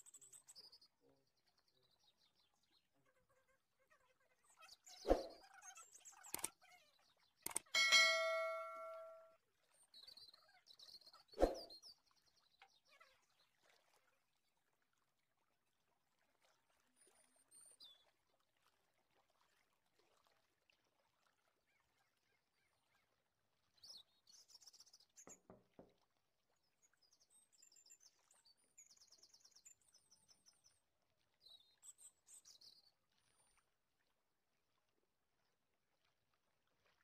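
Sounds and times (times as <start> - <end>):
faint bird-like chirps: 2.9 - 9.2, 10.0 - 11.9
soft knock: 25.3 - 26.0.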